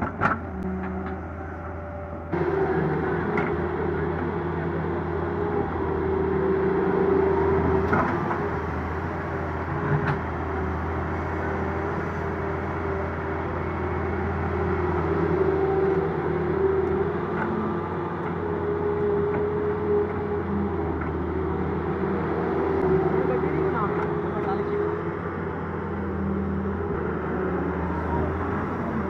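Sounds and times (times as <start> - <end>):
heavy diesel engines droning: 0.0 - 29.0.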